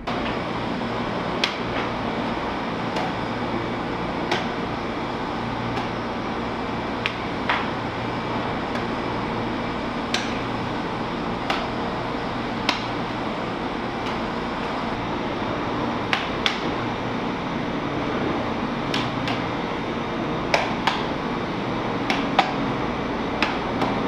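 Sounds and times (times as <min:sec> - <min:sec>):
steady background hum: 0:00.0 - 0:24.0
plastic club smacking into hand: 0:20.5 - 0:21.1, 0:22.1 - 0:22.6.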